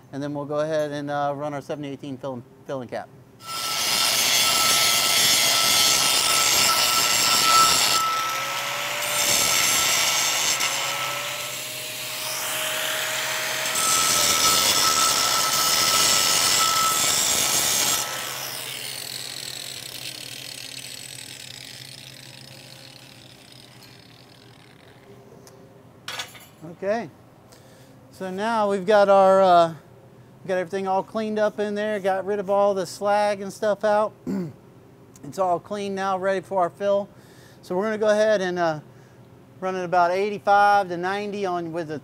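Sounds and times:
angle grinder grinding metal: 3.4 - 25.1.

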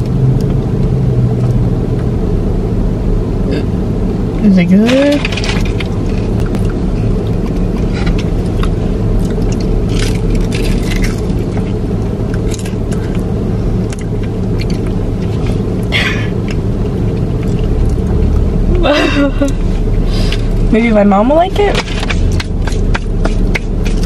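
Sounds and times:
low rumble inside car: 0.0 - 24.0
crisp crunches of chewing: 5.4 - 18.4.

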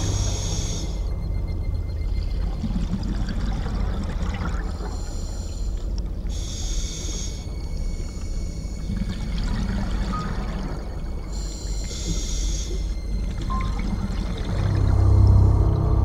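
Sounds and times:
low underwater rumble: 0.0 - 6.4, 12.8 - 16.0.

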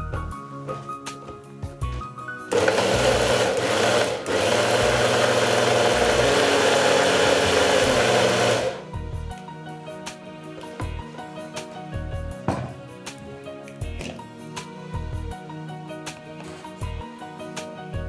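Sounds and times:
electric mixer blending: 2.5 - 8.9.

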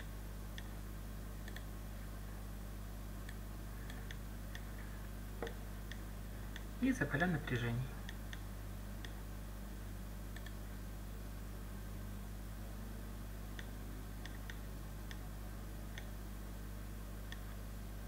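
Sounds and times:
low electrical hum and hiss: 0.0 - 18.0
computer mouse clicks: 1.4 - 1.7, 10.3 - 10.6, 13.6 - 15.2, 17.3 - 17.5.

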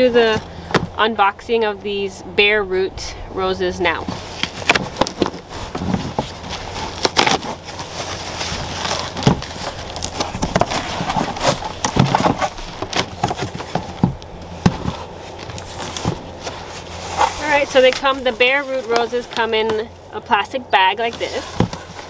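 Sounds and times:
cardboard box being opened: 4.1 - 19.8.

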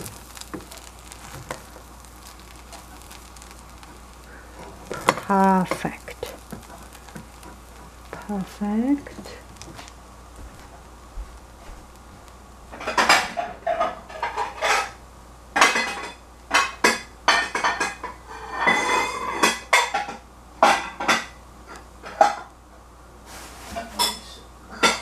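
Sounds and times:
dishes and utensils clattering: 12.8 - 15.0, 15.6 - 21.4, 23.7 - 25.0.

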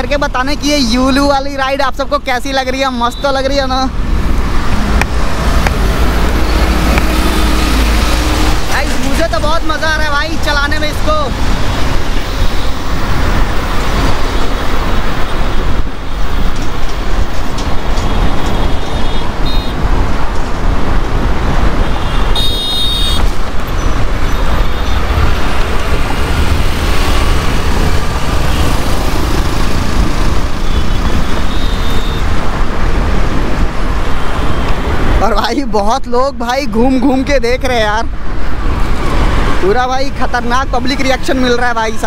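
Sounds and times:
road traffic noise: 0.0 - 42.0
wind rushing: 3.6 - 22.4, 23.2 - 35.2
vehicle horn: 18.1 - 19.8, 21.8 - 23.3, 30.6 - 32.2.

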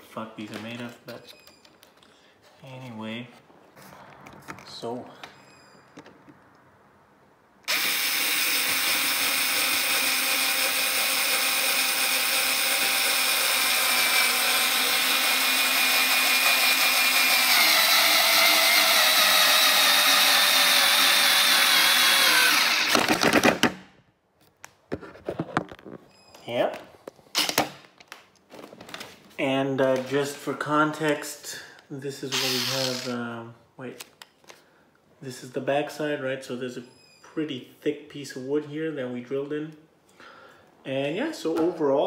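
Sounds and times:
electric screwdriver whine: 7.7 - 23.2, 32.3 - 33.1.

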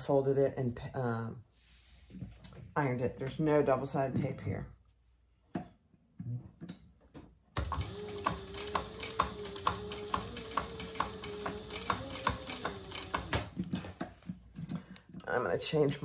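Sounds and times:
sewing machine stitching: 7.6 - 13.8.

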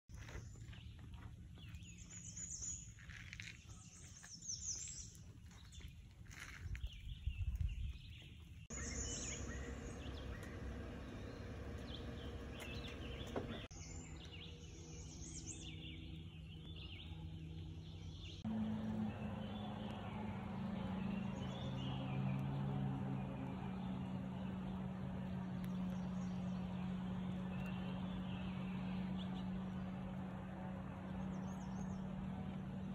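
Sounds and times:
birds chirping: 0.1 - 32.9
low steady hum: 8.7 - 32.9.

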